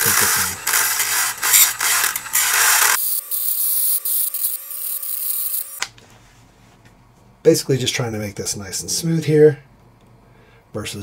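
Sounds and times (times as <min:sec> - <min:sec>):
rotary tool grinding metal: 0:00.0 - 0:05.8
rotary tool whine: 0:00.0 - 0:05.8.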